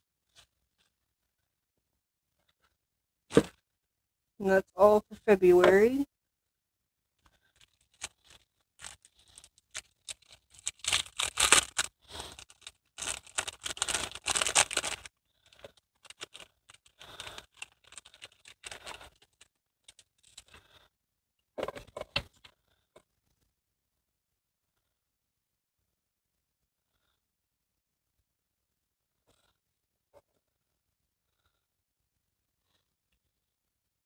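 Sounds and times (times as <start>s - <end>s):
plastic packaging crinkling: 7.4s - 20.6s.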